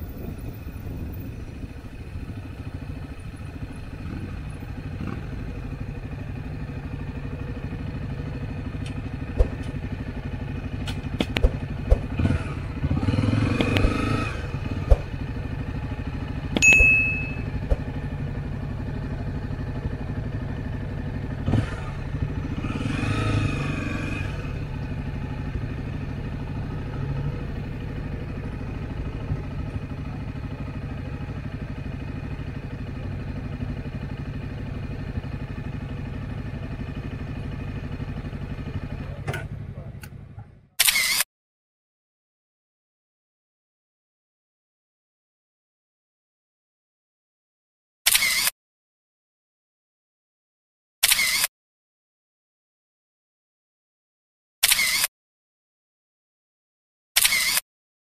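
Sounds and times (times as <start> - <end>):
motorcycle engine running: 0.0 - 40.8
short high-pitched tone: 16.6 - 17.6.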